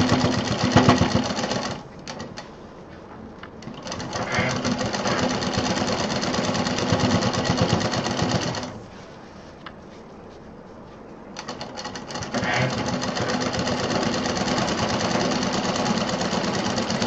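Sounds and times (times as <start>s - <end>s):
sewing machine stitching: 0.0s - 2.4s, 3.6s - 8.8s, 11.4s - 17.0s.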